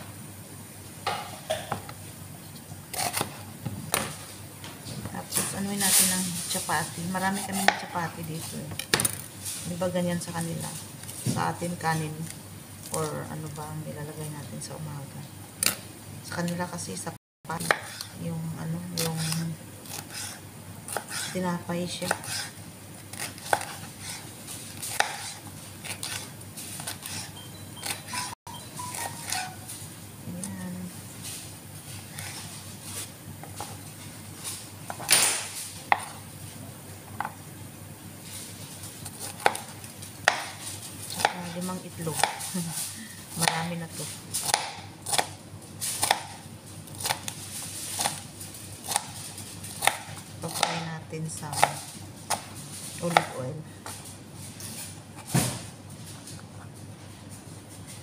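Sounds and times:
knife chopping on plastic board: 7.2s - 8.0s, 17.6s - 18.1s, 23.1s - 24.2s, 24.8s - 28.2s, 34.9s - 36.2s, 39.2s - 40.6s, 44.4s - 45.4s, 46.0s - 46.4s, 49.8s - 50.8s
knife slicing on cutting board: 22.1s - 28.3s.

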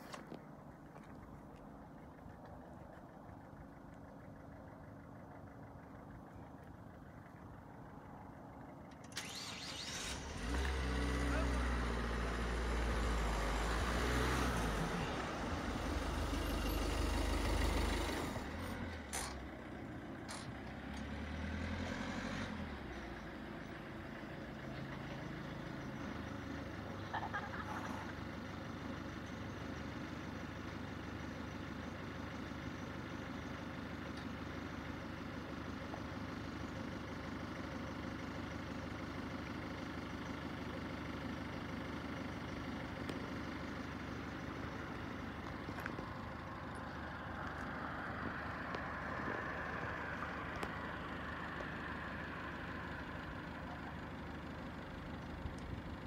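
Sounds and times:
low hum of road traffic: 0.0s - 56.0s
road vehicle passing: 9.1s - 28.1s, 43.9s - 56.0s.

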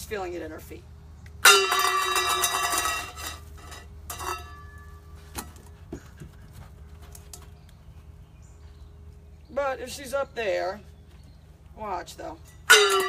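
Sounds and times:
dropped bowl clanging and ringing: 1.4s - 5.0s, 12.7s - 13.0s.

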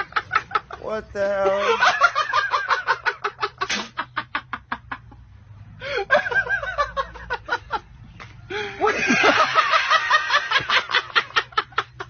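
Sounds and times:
person laughing hard: 1.4s - 4.4s, 8.5s - 12.0s.

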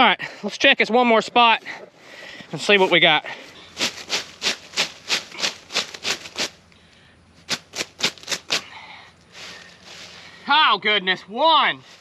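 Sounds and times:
hand sweeping through rustling leaves: 3.7s - 6.6s, 7.5s - 8.7s, 9.3s - 10.4s.

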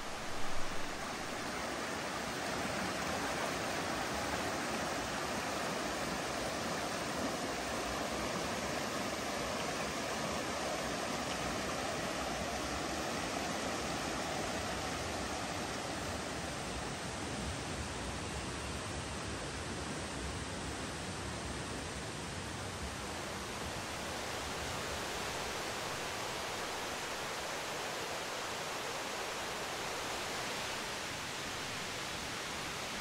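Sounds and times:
mountain stream rushing: 0.0s - 33.0s.

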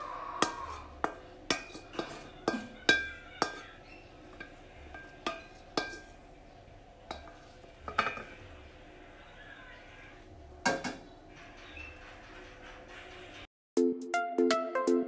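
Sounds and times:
metal utensil scraping frying pan: 0.4s - 8.5s.

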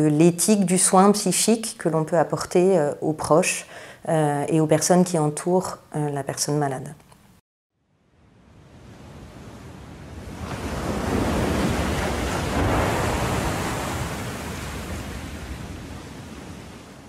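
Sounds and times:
sea waves surging: 8.3s - 17.0s.

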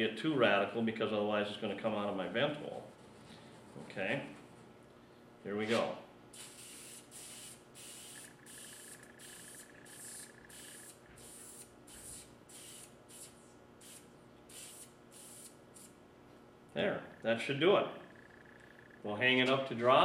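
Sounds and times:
aerosol sprayer hissing bursts: 6.4s - 15.9s.

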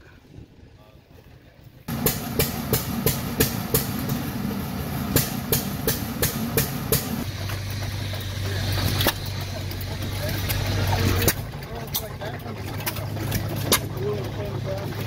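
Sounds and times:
low mechanical rumble: 1.8s - 15.0s
steady low hum: 1.9s - 12.2s
stationary engine clicking: 1.9s - 15.0s.

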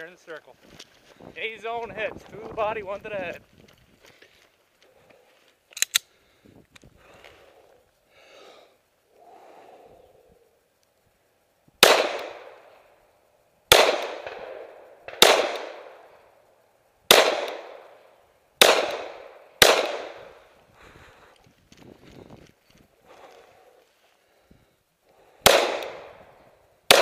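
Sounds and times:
pistol shots with echo: 11.8s - 12.6s, 13.7s - 16.1s, 17.1s - 18.0s, 18.6s - 20.4s, 25.4s - 26.2s.

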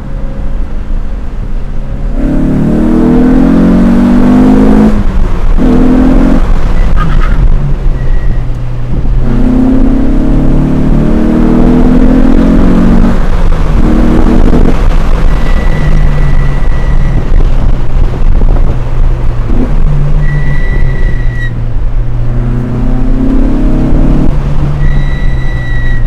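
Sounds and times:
car engine revving: 0.0s - 26.0s.

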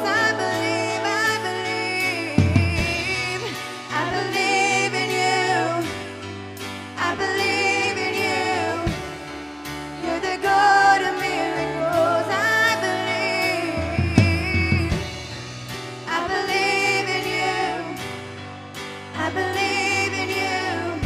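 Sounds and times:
woman singing with vibrato: 0.0s - 5.9s, 10.0s - 15.2s
band chords and bass: 0.0s - 21.0s.

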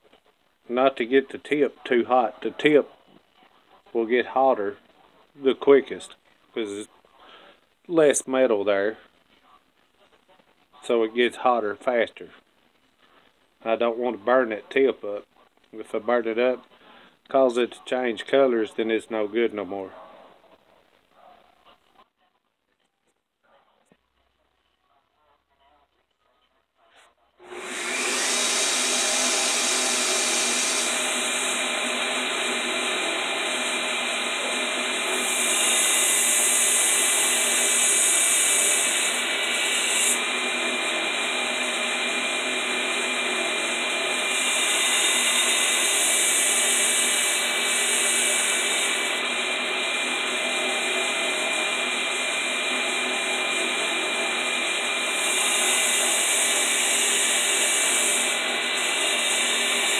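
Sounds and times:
belt grinder running: 27.4s - 59.9s.

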